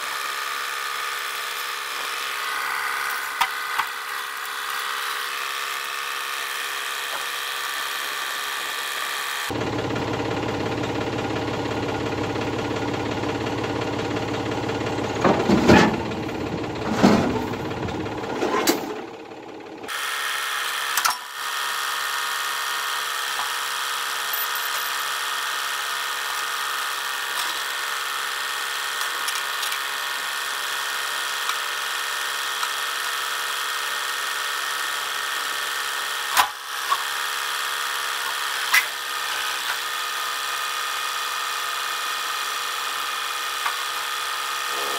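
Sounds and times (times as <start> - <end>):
tractor engine running: 9.5 - 19.9.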